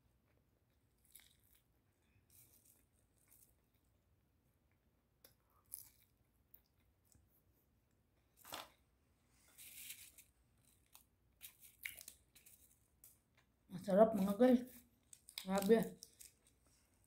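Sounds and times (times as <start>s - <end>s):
chewing crunches and clicks: 0.7s - 1.7s, 10.7s - 13.5s, 15.0s - 16.6s.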